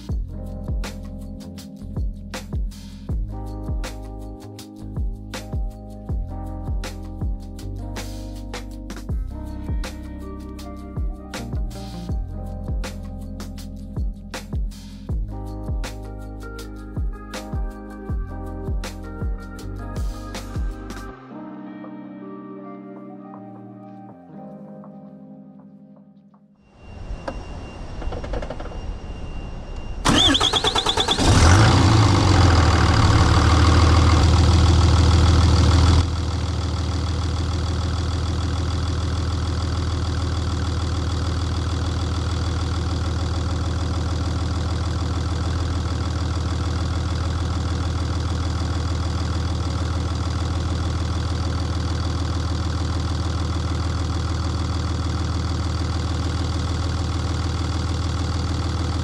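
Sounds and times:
diesel engine starting and idling: 27.3 - 59.0.

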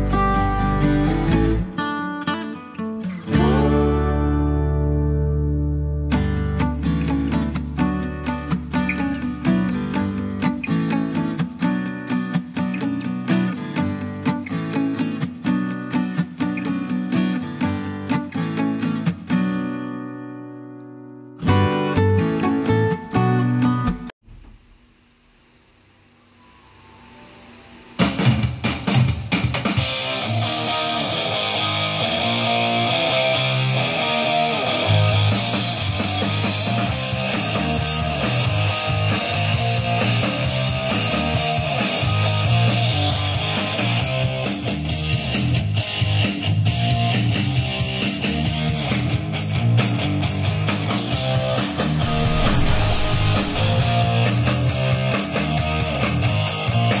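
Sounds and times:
rock song on a speaker: 28.0 - 57.0.

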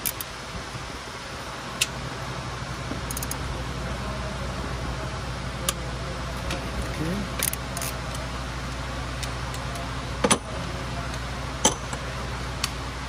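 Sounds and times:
ratchet wrench clicks: 0.0 - 0.3, 3.1 - 3.4, 7.4 - 8.2
steady background hum: 0.0 - 13.0.

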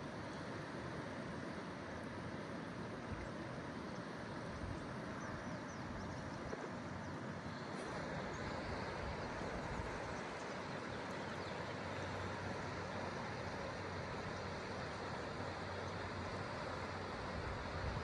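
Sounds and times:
river water rushing over rocks: 0.0 - 18.0.

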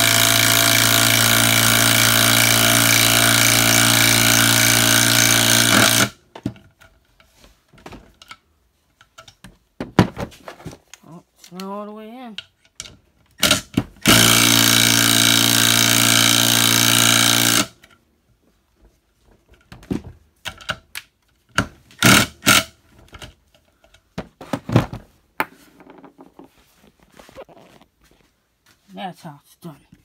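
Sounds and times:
impact driver hammering a screw: 0.0 - 6.2, 13.4 - 17.8, 21.5 - 22.7.

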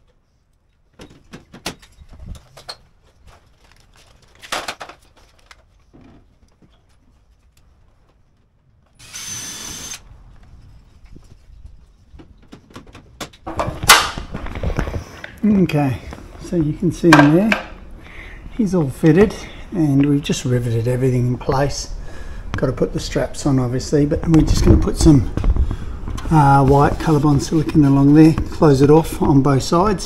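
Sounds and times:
cordless drill whirring: 9.0 - 10.1.

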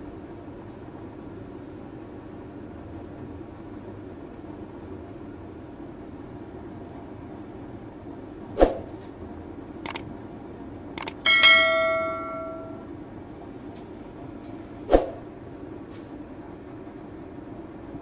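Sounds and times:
mouse clicks: 11.0 - 11.2
bell chime: 11.3 - 12.8.

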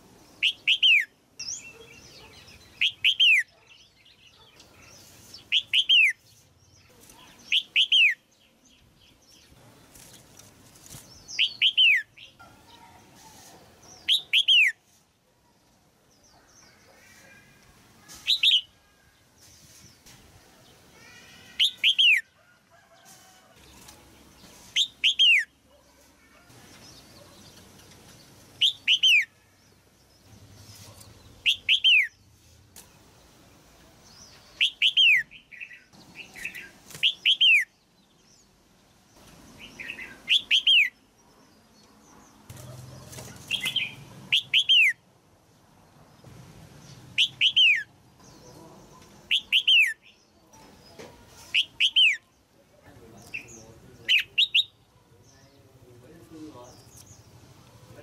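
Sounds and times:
bulbul calling: 0.4 - 6.2, 6.9 - 8.3, 13.9 - 14.8, 21.2 - 22.3, 24.7 - 25.6, 26.8 - 29.4, 30.6 - 32.2, 34.2 - 37.8, 39.6 - 41.0, 42.5 - 45.0, 47.2 - 50.7, 51.5 - 52.3, 53.2 - 55.2.

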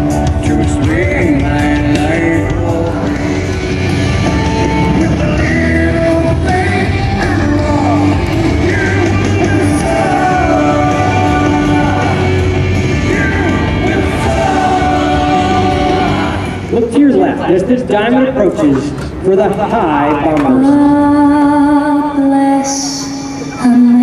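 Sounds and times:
rock music over loudspeakers: 0.0 - 24.0.

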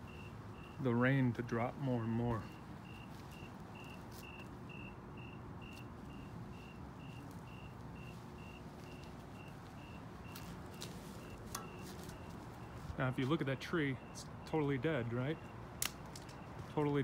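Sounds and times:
faint high-pitched chirps: 2.4 - 12.9.

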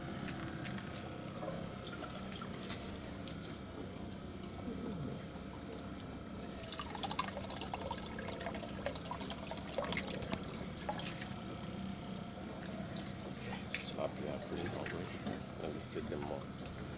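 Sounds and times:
steady low hum: 0.0 - 16.9
water trickling and splashing: 0.1 - 3.7, 5.5 - 16.5
water drips and splashes: 0.2 - 3.6, 5.7 - 15.4.

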